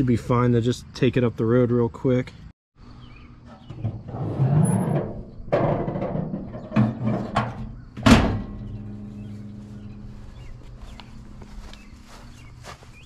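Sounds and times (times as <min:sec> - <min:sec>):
metal hood rattling: 0:03.4 - 0:10.2
truck hood slamming: 0:05.0 - 0:08.8.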